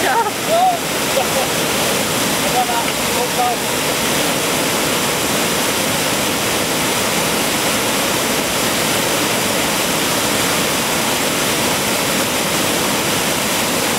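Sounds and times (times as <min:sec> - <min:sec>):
waterfall rushing over rocks: 0:00.0 - 0:13.9.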